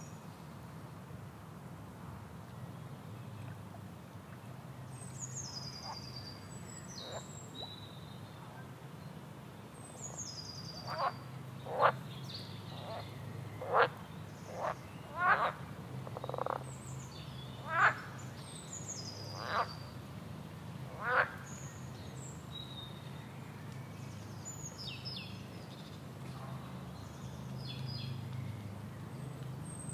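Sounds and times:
frogs croaking: 10.8s - 12.1s, 12.8s - 16.6s, 17.6s - 18.2s, 19.3s - 19.8s, 20.9s - 21.5s.

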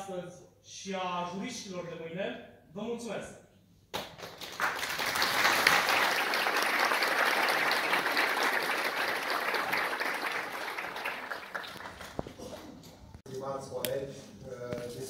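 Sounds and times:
audience applauding: 4.0s - 12.8s.

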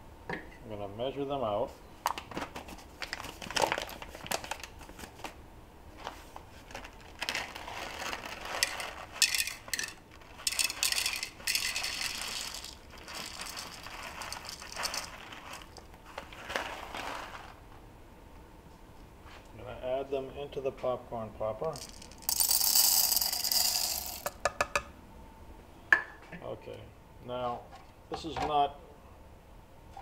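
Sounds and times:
paper bag crinkling: 2.6s - 5.3s, 6.0s - 17.6s
coffee beans rattling into cup: 6.6s - 17.6s, 21.7s - 24.4s.

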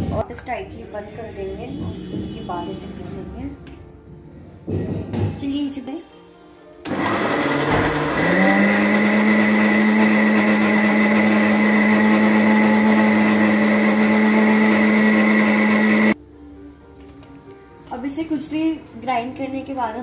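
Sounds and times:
mixer grinder motor whining: 6.8s - 16.2s.

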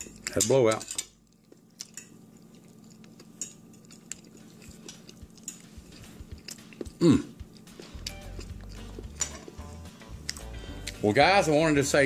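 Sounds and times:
chewing: 1.2s - 11.0s.

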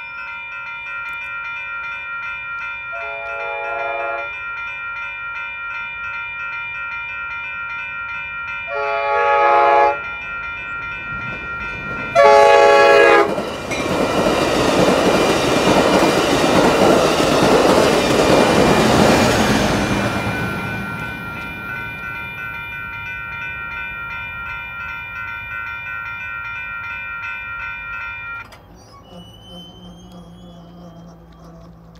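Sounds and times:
electronic crossing bell ringing: 0.0s - 31.9s
train passing with rail clatter: 0.0s - 31.9s
train horn blasts: 2.9s - 4.3s, 8.7s - 10.2s, 12.1s - 13.5s, 29.0s - 31.9s.

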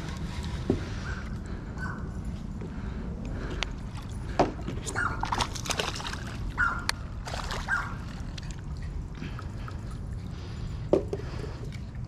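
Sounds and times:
water splashing and dripping: 4.0s - 10.5s.

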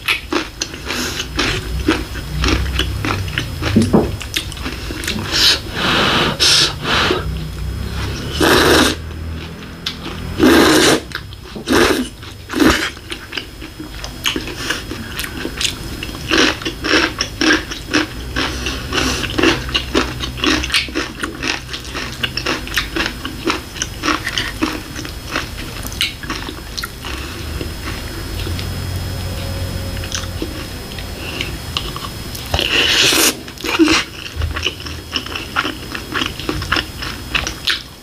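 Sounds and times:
close-up chewing mouth clicks: 12.7s - 28.7s, 31.4s - 37.9s.

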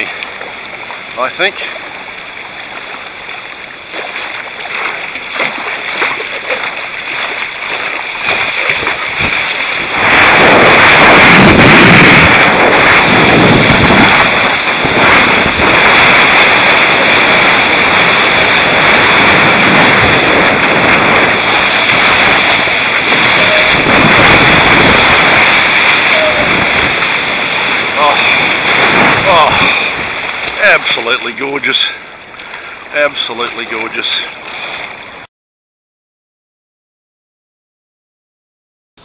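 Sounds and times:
rushing water: 0.0s - 35.3s
wind buffeting microphone: 4.6s - 31.2s.

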